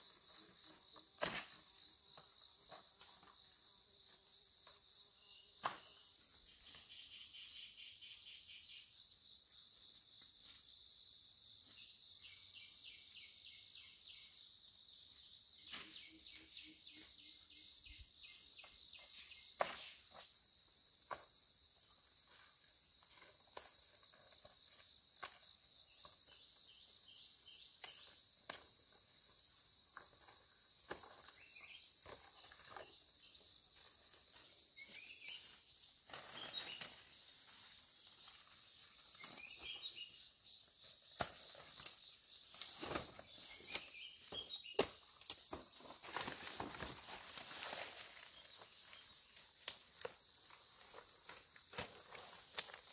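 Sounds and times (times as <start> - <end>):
insects chirring: 0.0 - 52.9.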